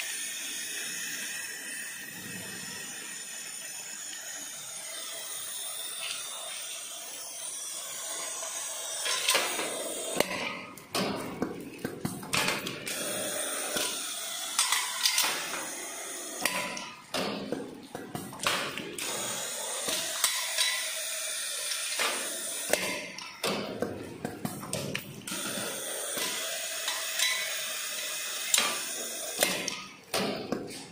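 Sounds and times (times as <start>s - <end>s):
pneumatic clamps clicking: 3.9s - 30.9s
air hiss: 12.9s - 16.8s.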